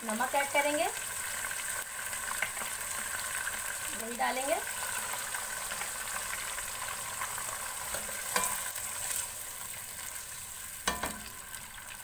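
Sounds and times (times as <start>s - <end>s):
meat sizzling in a pot: 0.0s - 12.0s
spoon clinking against pot: 8.3s - 8.7s, 10.8s - 11.3s.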